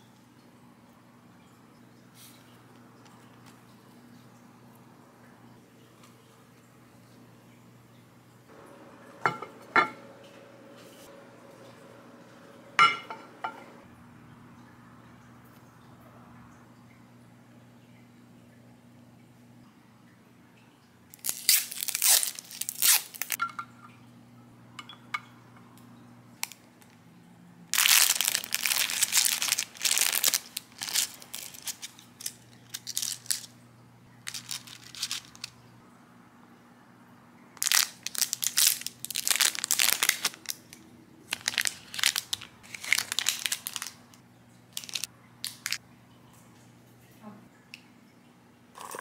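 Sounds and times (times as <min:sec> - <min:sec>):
food wrappers crinkling: 0:21.2 - 0:23.4, 0:26.4 - 0:27.0, 0:27.7 - 0:33.6, 0:34.2 - 0:35.6, 0:37.6 - 0:45.8
short packaging crackles: 0:21.2 - 0:23.4, 0:27.8 - 0:33.6, 0:34.2 - 0:35.6, 0:37.6 - 0:45.8.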